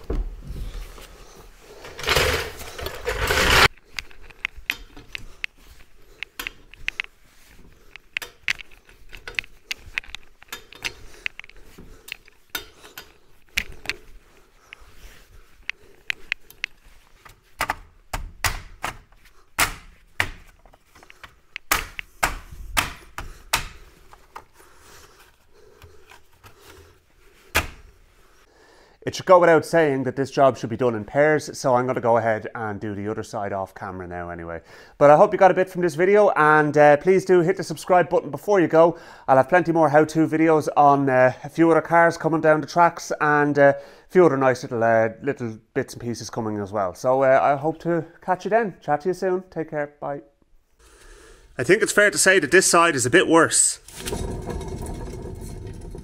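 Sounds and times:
trolley jack releasing rush: 1.9 - 3.7.

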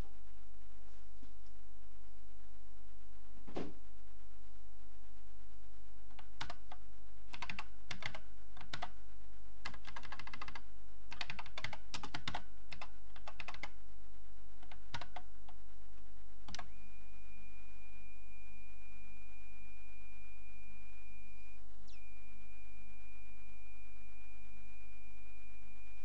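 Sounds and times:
steady high tone: 16.6 - 26.0.

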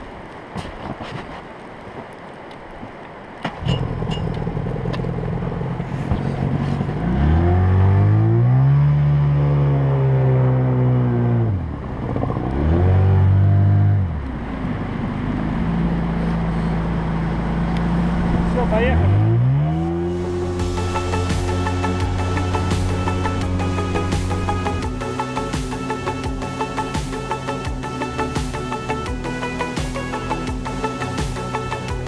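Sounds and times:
outboard motor idling and revving: 3.6 - 32.0.

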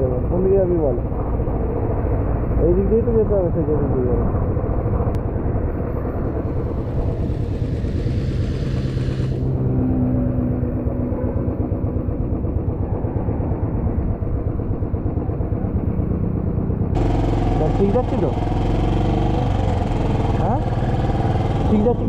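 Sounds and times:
wind rumble in microphone: 3.6 - 9.7
motorcycle engine running: 4.4 - 22.0
hiss: 7.4 - 9.4.

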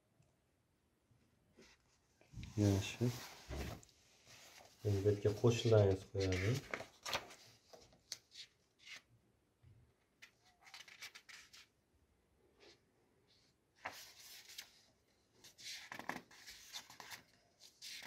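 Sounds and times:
paper sheets rustling: 2.5 - 9.0, 10.2 - 11.7, 13.8 - 18.0.

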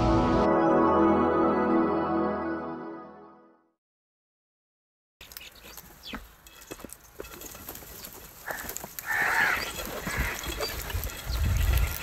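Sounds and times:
crows cawing harshly: 8.4 - 10.6.

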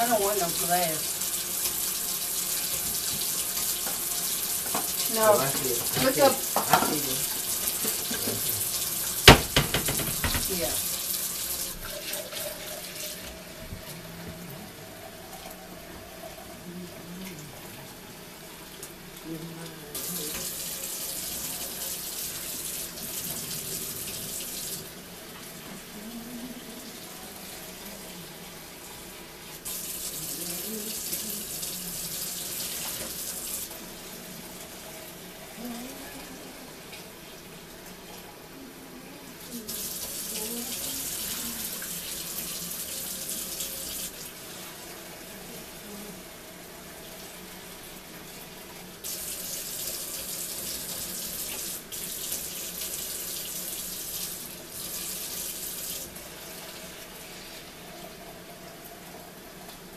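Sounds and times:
faucet running into steel sink: 0.0 - 13.9, 19.9 - 25.9, 29.6 - 38.3, 39.5 - 45.2, 48.1 - 59.9
water splashing over hair: 4.7 - 8.6.

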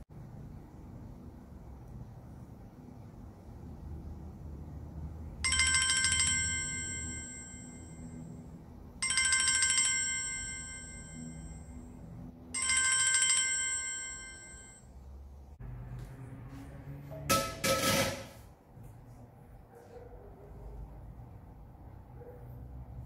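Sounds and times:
smartphone timer alarm chime: 5.5 - 8.2, 9.0 - 11.8, 12.6 - 14.8.

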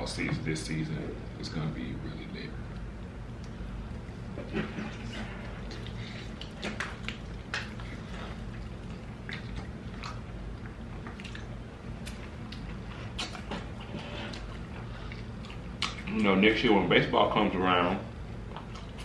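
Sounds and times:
steady low hum: 0.0 - 19.0
people chewing with wet crunches: 2.7 - 16.5, 18.3 - 19.0.

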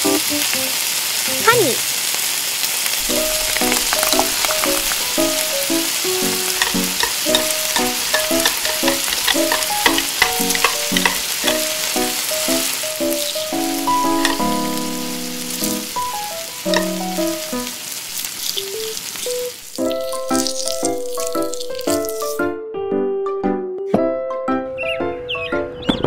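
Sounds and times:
sauce sizzling in metal pot: 0.0 - 22.5
plucked background music: 3.0 - 17.7, 19.8 - 25.7
metal spoon scraping pot: 3.2 - 5.5, 6.3 - 12.7, 14.0 - 14.7, 16.7 - 17.0.

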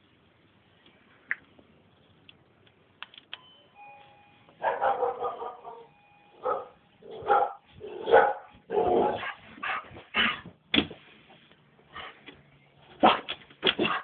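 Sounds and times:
dog barking: 4.6 - 10.4, 13.0 - 14.0.

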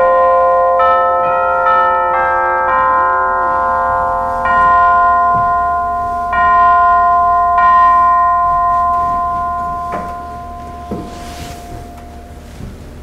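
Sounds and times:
chime bells ringing: 0.0 - 12.6
soft knock: 9.9 - 12.8.

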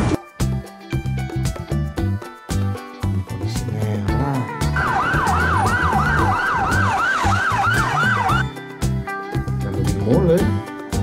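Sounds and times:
background music with bass: 0.0 - 11.0
police siren yelping: 4.8 - 8.5.

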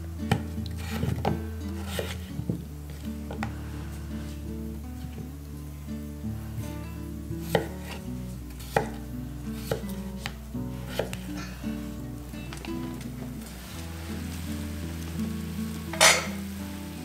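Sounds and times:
knife chopping on wooden board: 0.3 - 2.6, 7.4 - 8.0, 8.6 - 9.0, 9.6 - 11.2.

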